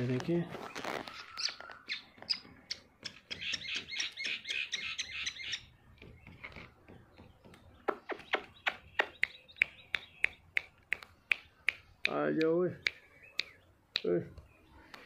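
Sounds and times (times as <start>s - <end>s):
finger snaps: 7.9s - 14.1s.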